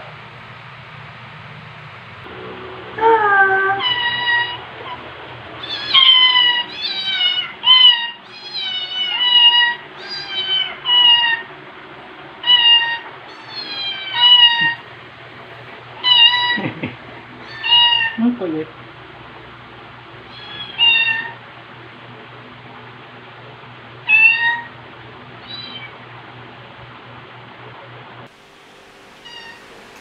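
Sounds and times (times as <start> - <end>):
cat meowing: 3.5 - 5.0, 5.6 - 11.5, 12.4 - 14.8, 16.0 - 16.8, 17.4 - 18.2, 20.3 - 21.4, 24.0 - 24.7, 25.4 - 26.0, 29.2 - 29.7.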